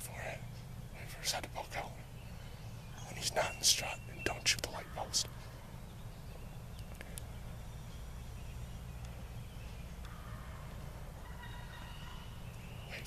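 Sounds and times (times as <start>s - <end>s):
faint clicks: 6.8s - 7.3s, 10.0s - 10.8s.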